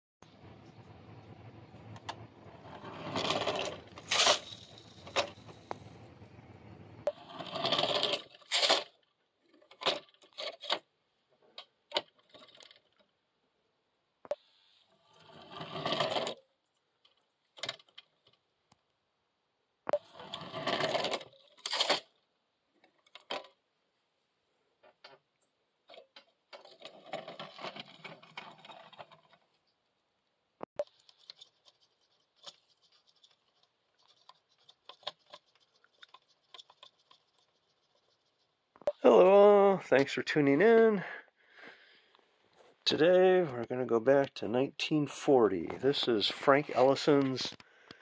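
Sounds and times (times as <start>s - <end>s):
model mine rattling clatter: 0.4s - 6.2s, 7.3s - 10.8s, 11.5s - 13.1s, 25.9s - 29.6s.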